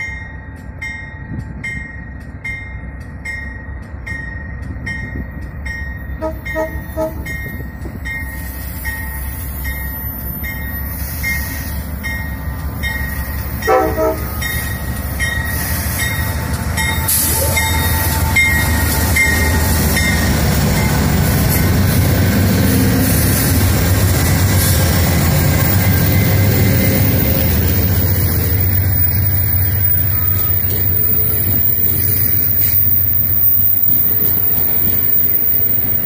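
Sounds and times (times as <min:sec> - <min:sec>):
locomotive bell ringing: 0:00.0 - 0:36.0
locomotive engine and wheel rumble: 0:00.0 - 0:36.0
short train horn toot: 0:06.2 - 0:07.3, 0:13.6 - 0:14.4.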